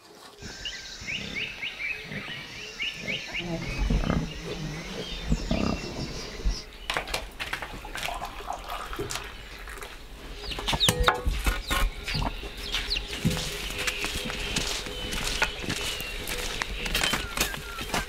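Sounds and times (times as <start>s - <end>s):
chickens clucking: 10.5s - 18.0s.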